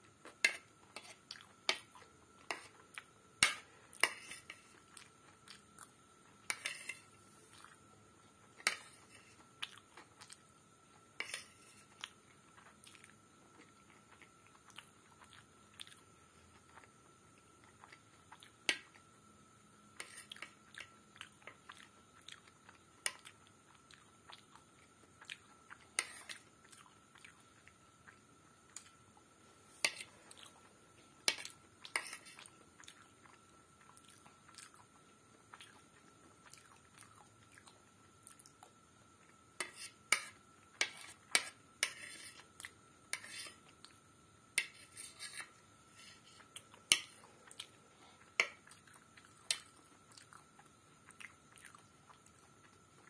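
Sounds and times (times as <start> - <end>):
metal spoon scraping a plate: 6.5 - 7.1, 11.2 - 11.9, 39.6 - 42.4, 43.1 - 43.6, 44.6 - 46.3
chewing and mouth sounds: 31.8 - 39.4, 46.4 - 53.0.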